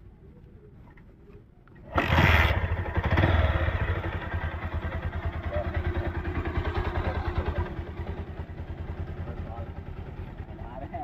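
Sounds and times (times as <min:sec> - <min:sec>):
motorcycle engine kick-started: 0:01.8 - 0:10.5
motorcycle engine revving: 0:01.8 - 0:11.0
motorcycle engine idling: 0:01.9 - 0:11.0.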